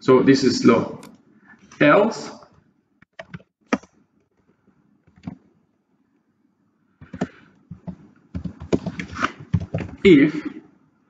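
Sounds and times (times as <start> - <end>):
keyboard typing: 3.0 - 4.0, 5.0 - 5.4, 7.0 - 10.0.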